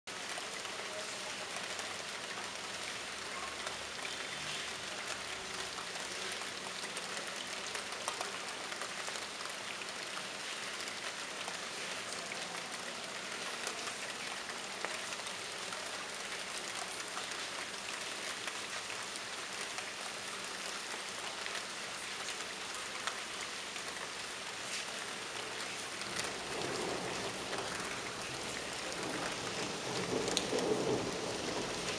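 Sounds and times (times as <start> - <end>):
rain drops splashing: 0.1 - 31.9
rain hissing: 21.8 - 31.9.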